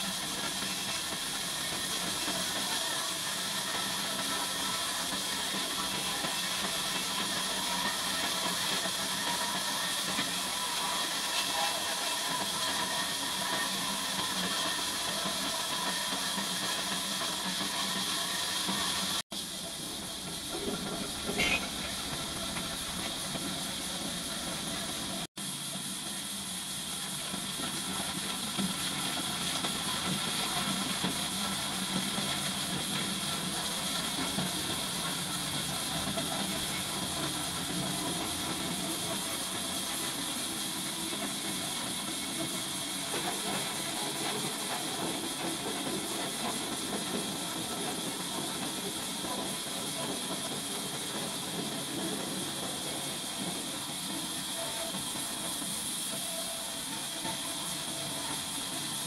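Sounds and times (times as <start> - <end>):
band sawmill hissing: 0.0 - 59.0.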